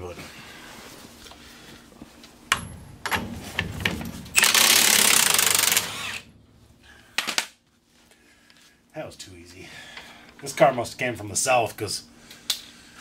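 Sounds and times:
impact wrench hammering: 0:02.5 - 0:07.5.

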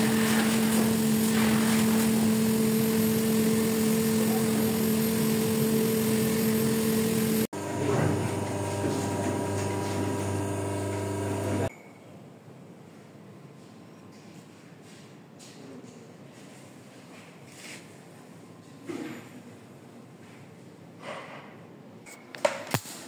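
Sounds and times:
workshop machinery drone: 0:00.0 - 0:11.7.

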